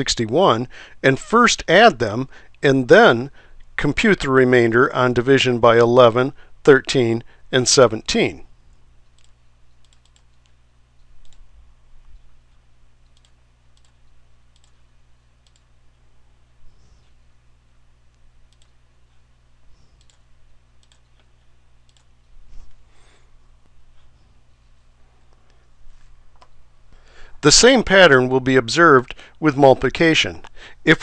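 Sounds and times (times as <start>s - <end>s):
steady low hum: 0.0s - 31.0s
computer mouse clicking: 9.1s - 10.6s, 11.2s - 11.5s, 13.0s - 14.8s, 15.4s - 15.7s, 18.1s - 18.8s, 20.0s - 20.2s, 20.8s - 21.3s, 21.9s - 22.1s.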